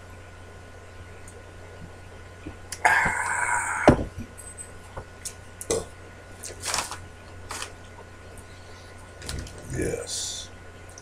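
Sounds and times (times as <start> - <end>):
snack bag rustling: 6.4 - 7.8, 9.2 - 9.7.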